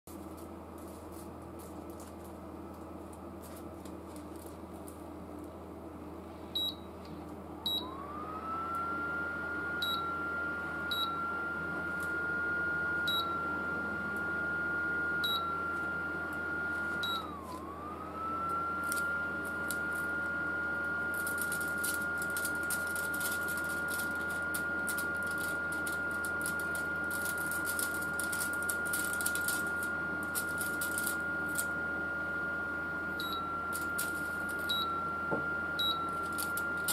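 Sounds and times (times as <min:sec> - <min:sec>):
aluminium foil crinkling: 0:00.1 - 0:05.0, 0:21.1 - 0:31.7, 0:33.7 - 0:34.7, 0:36.1 - 0:36.9
cooling fan whine: 0:00.1 - 0:36.9
touch panel beeps: 0:06.6 - 0:06.8, 0:35.8 - 0:36.1.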